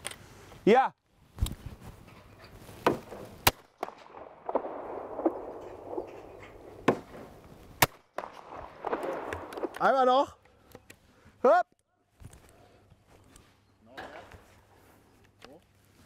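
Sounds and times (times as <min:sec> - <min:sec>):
shotgun shots: 0:02.9 - 0:09.9.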